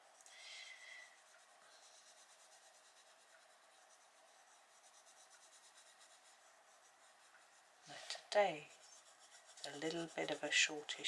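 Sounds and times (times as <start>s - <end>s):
coloured pencil scratching on paper: 0.0s - 11.0s.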